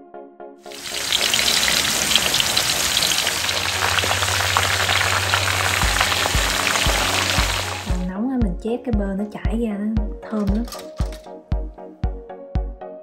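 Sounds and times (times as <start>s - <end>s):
oil sizzling and crackling: 0.7s - 8.1s.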